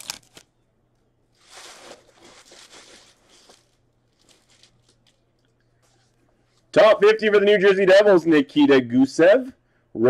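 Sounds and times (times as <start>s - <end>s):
foil card pack rustling: 0.0s - 0.4s, 1.4s - 5.2s.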